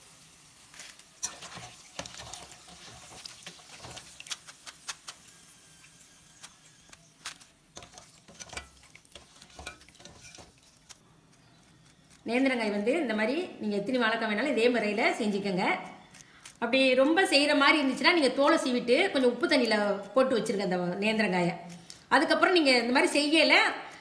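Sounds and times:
faint oil sizzle: 0.0 - 12.1.

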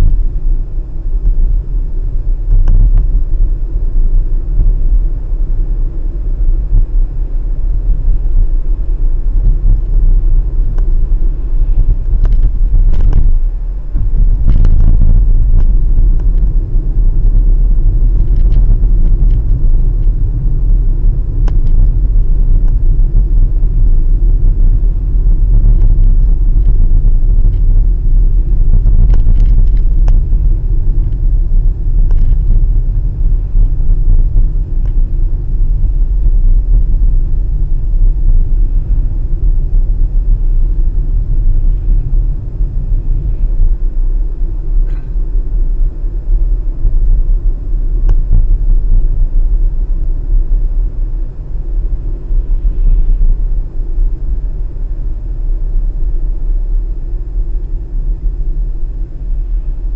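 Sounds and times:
car cabin rumble: 0.0 - 59.9
faint ticks: 10.7 - 13.4, 28.8 - 30.4, 32.0 - 32.6.

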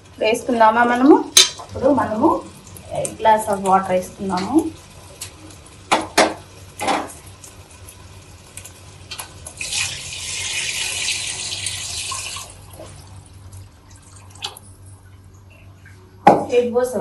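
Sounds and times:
water pouring into a pot: 1.6 - 14.8.

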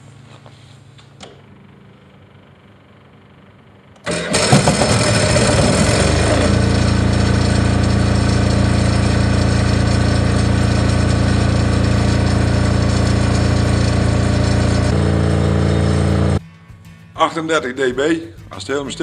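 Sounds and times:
diesel generator engine droning: 1.6 - 16.4.

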